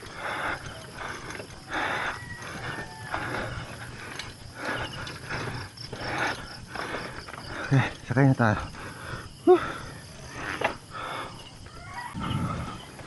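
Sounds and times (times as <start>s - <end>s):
footsteps on dirt and gravel: 0.0s - 8.1s
bicycle freewheel ticking: 0.0s - 9.2s.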